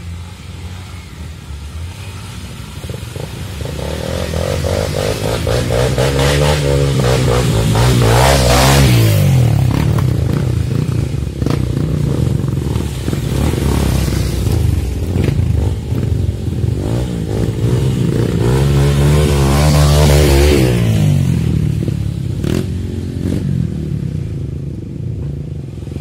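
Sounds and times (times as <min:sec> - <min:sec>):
dirt bike engine revving: 0:02.0 - 0:21.6.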